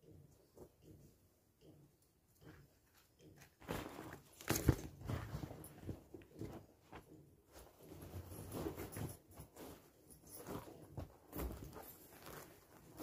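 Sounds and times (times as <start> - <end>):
bedding and mat rustling: 2.9 - 13.0.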